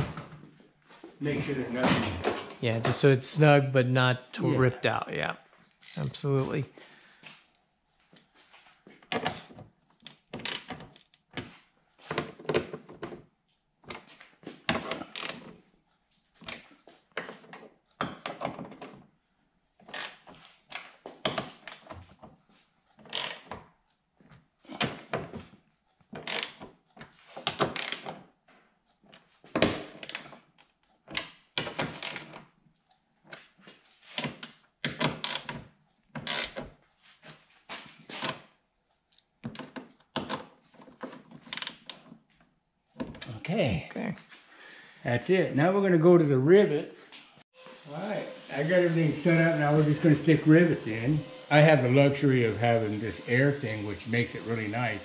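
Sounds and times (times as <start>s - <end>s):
hand ratchet clicking: 23.1s - 23.5s, 26.2s - 26.6s, 27.6s - 28.1s, 31.9s - 32.4s, 35.0s - 35.6s, 36.2s - 36.6s.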